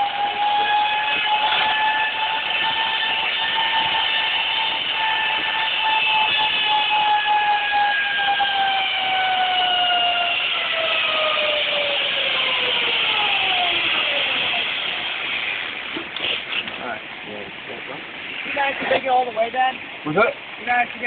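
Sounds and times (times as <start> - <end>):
zip line pulleys whining hum: 0.0 - 16.8
rushing hiss: 11.2 - 20.8.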